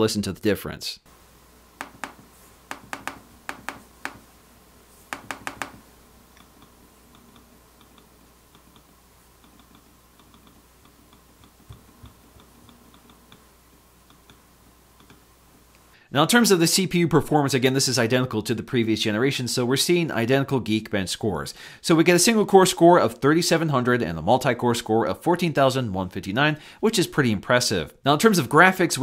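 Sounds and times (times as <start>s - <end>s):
trackpad clicks: 1.8s - 4.3s, 5.0s - 13.4s
faint light trackpad ticks: 6.4s - 14.4s.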